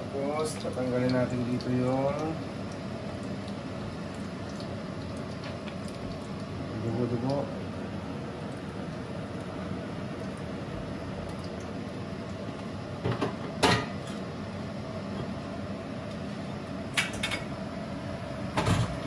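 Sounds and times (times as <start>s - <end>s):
pot of broth simmering: 0.0s - 13.5s
kitchenware clinking: 13.2s - 14.2s.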